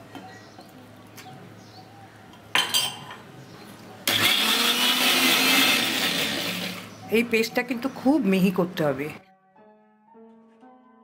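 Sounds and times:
mixer grinder motor running: 4.0 - 6.9.

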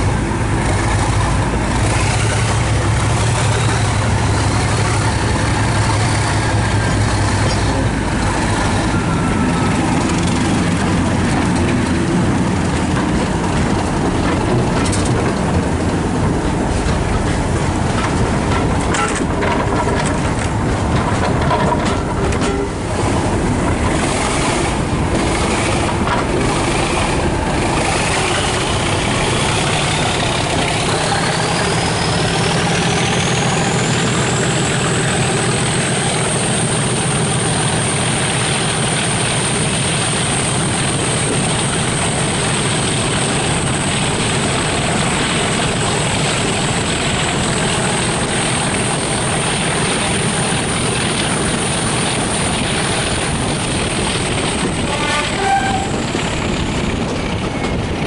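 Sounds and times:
diesel locomotive engine working hard: 0.0 - 58.0
train wheel noise: 0.0 - 58.0
train horn blast: 22.3 - 22.9, 54.6 - 56.1.

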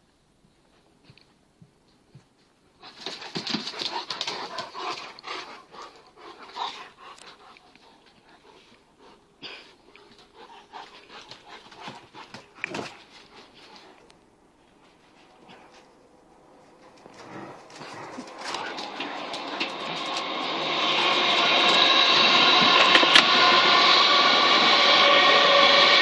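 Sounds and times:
dogs scuffling: 0.5 - 9.0, 10.0 - 20.4
dogs panting: 2.1 - 23.5.

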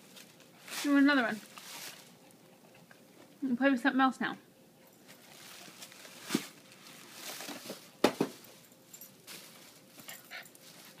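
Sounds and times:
paper bags rustling and crackling: 0.0 - 2.2, 5.0 - 10.0.

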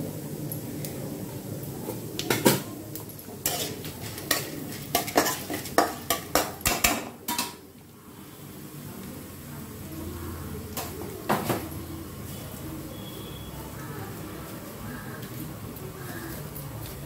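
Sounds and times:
oil sizzling: 0.0 - 17.0
spatula scraping metal pan: 3.4 - 6.8.

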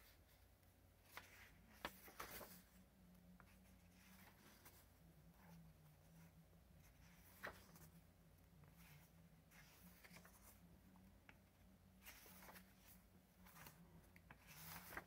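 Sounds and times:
paper pages rustling: 1.0 - 2.8, 3.4 - 15.0.

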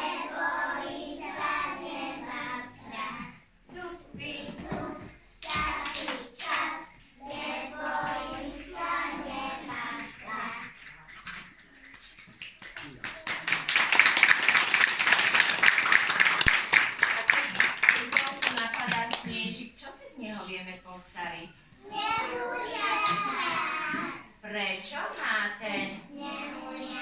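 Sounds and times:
young children singing: 0.0 - 11.8, 21.7 - 24.4, 25.8 - 27.0
applause: 12.0 - 19.3.

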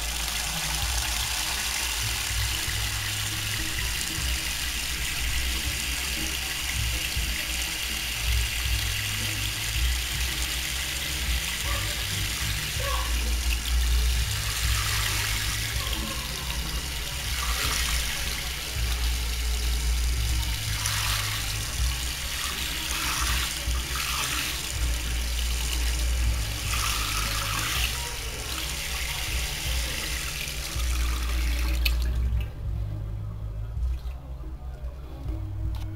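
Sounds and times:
tap water spraying into basin: 0.0 - 32.6
music with low bass line: 0.0 - 35.9.

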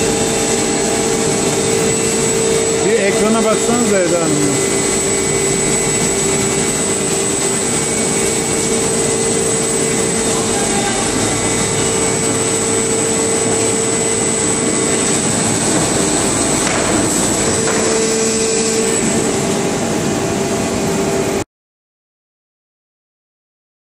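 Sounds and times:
machine running with whine: 0.0 - 21.4.

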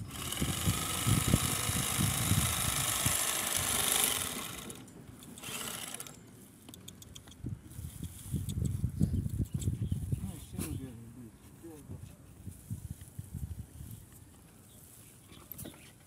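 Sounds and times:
bag sewing machine running: 0.0 - 6.2.

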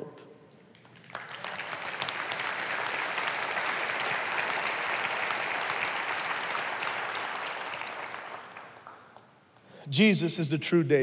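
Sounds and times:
congregation clapping: 0.6 - 9.6.

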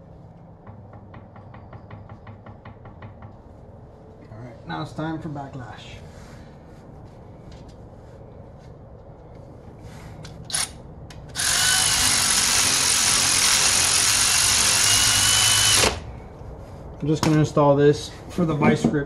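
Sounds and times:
cordless drill running: 11.4 - 16.1.

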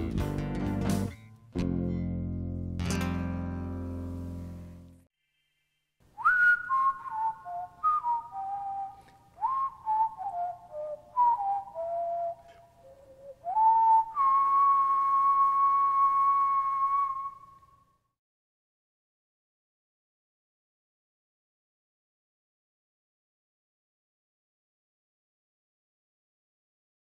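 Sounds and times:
person whistling a tune: 6.2 - 18.0.

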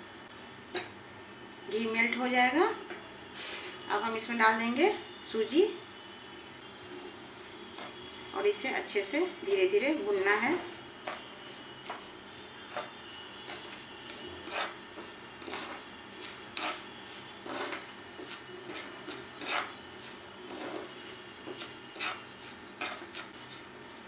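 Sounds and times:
spoon scraping pan: 7.3 - 8.1, 9.9 - 24.0.

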